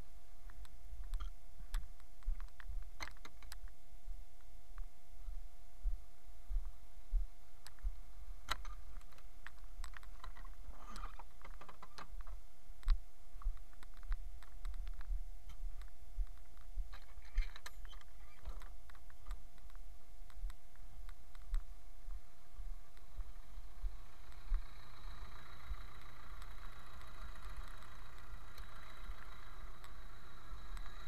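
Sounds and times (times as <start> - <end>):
low rumble: 3.7 - 18.2, 18.8 - 31.0.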